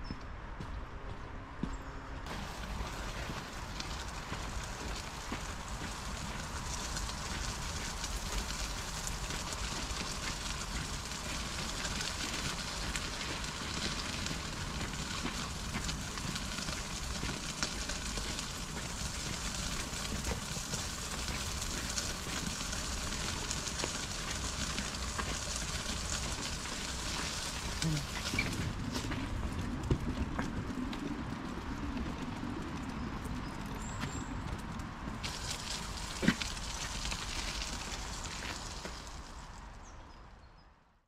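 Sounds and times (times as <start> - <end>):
wheels rolling over gravel: 2.2 - 40.6.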